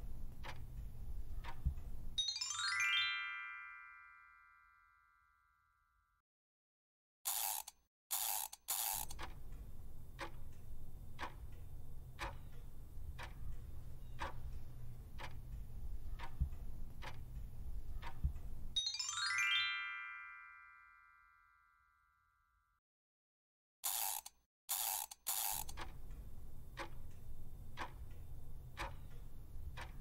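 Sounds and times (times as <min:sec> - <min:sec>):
countdown clock ticking: 0:00.0 - 0:02.1, 0:09.0 - 0:18.8, 0:25.4 - 0:30.0
rising chime arpeggio: 0:02.2 - 0:05.3, 0:18.8 - 0:22.1.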